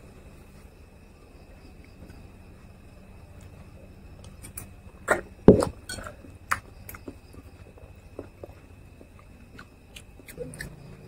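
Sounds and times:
chewing sounds: 6.0s - 11.0s.

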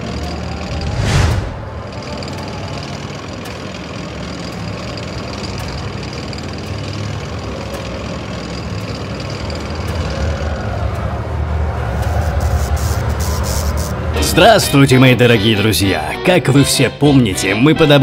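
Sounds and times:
heavy tank engine droning: 0.0s - 16.6s.

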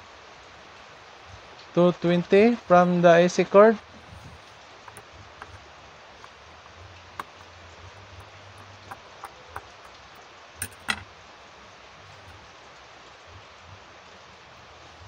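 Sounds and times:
steady hiss: 0.0s - 15.0s
screwdriver clicks and taps: 4.9s - 5.6s, 7.2s - 10.0s, 10.6s - 11.0s.

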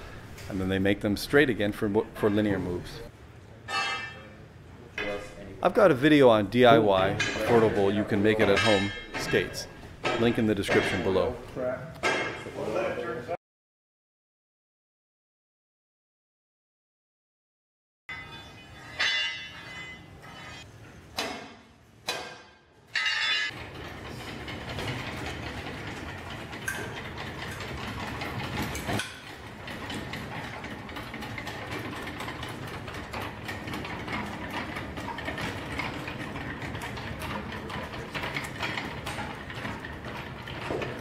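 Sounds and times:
short knocks and scrapes: 18.2s - 20.7s.

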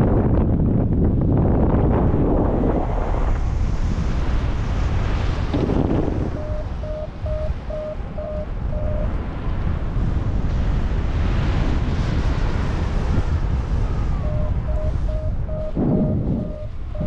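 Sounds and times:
wind rush on microphone: 0.0s - 17.0s
short even beeps: 6.3s - 9.1s, 14.2s - 17.0s.

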